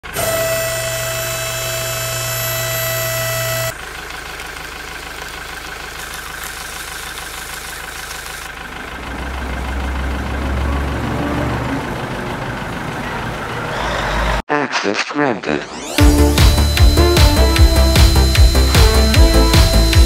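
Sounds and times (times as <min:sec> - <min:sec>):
small electric motors whining: 0:00.0 - 0:03.8, 0:05.9 - 0:08.6, 0:13.6 - 0:14.4, 0:15.6 - 0:20.0.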